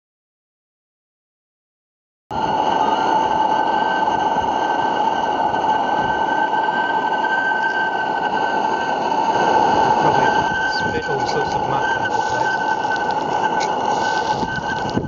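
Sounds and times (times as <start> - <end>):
gas burner firing: 2.3 - 15.0
steam engine hissing roar: 2.3 - 15.0
thin whistling tone: 2.3 - 15.0.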